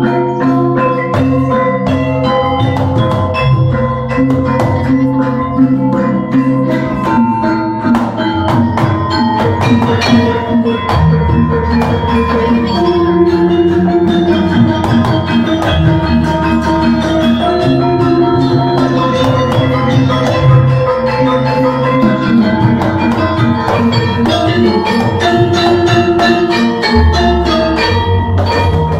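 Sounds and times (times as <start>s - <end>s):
gamelan ensemble playing: 0.0s - 28.9s
hand drum strokes: 0.0s - 28.9s.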